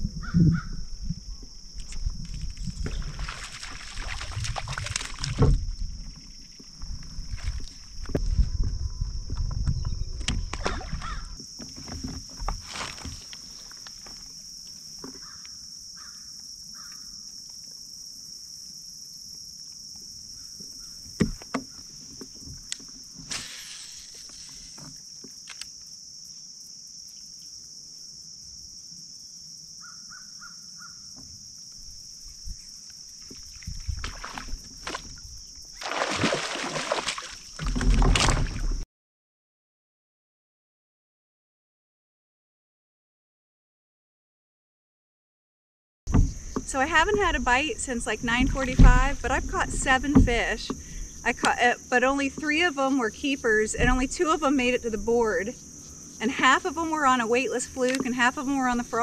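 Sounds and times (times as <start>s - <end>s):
bumping and rustling: 6.8s - 14.3s, 33.3s - 38.8s, 46.1s - 51.5s
distant bird calls: 15.1s - 17.2s, 29.8s - 31.2s.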